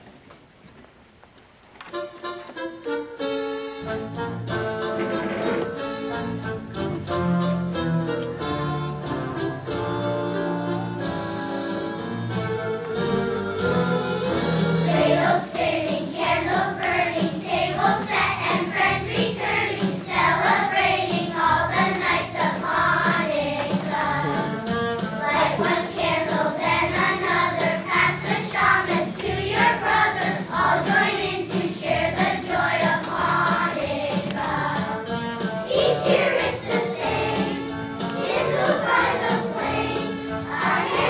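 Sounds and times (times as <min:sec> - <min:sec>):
instrumental backing: 0:01.9 - 0:41.0
choir singing: 0:13.9 - 0:24.5, 0:25.2 - 0:34.9, 0:35.6 - 0:41.0.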